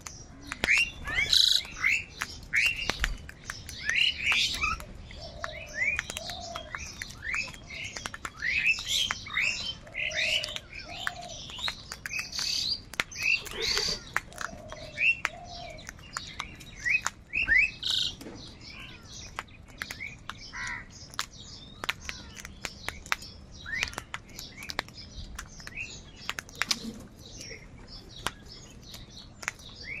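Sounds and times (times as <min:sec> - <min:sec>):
beaks pecking: 0:00.0 - 0:30.0
crows calling: 0:03.9 - 0:19.4, 0:20.0 - 0:22.5.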